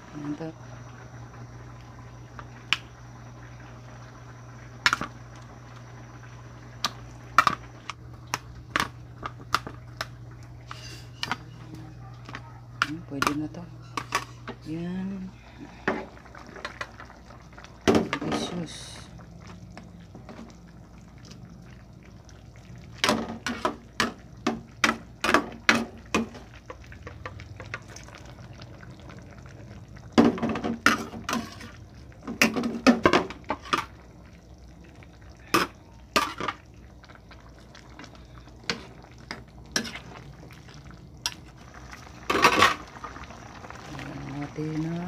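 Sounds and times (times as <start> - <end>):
utensil scraping and clinking in pot: 10.6 - 14.8, 30.5 - 33.9, 38.6 - 41.4
broth bubbling: 12.9 - 45.0.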